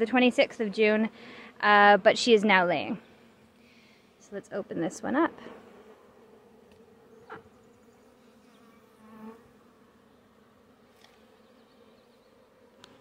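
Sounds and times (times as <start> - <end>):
bees buzzing: 0.3 - 13.0.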